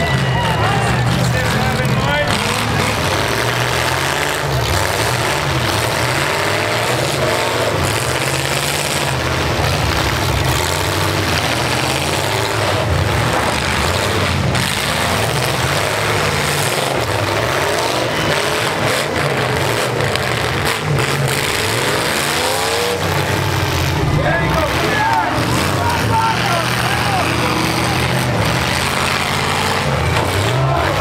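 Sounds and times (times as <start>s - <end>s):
truck engines revving: 0.0s - 31.0s.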